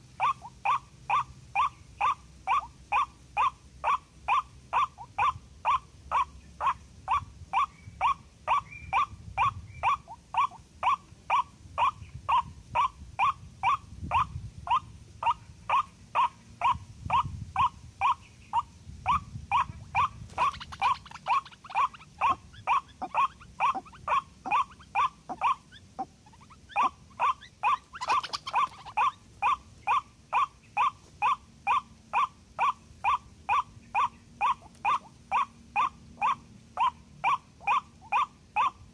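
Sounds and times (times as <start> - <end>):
waterhen calling harsh notes: 13.2 - 38.9.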